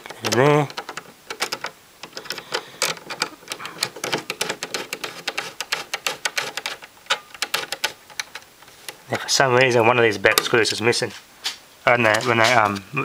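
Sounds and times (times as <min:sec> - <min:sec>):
screwdriver clicking into plastic: 0:00.0 - 0:09.0.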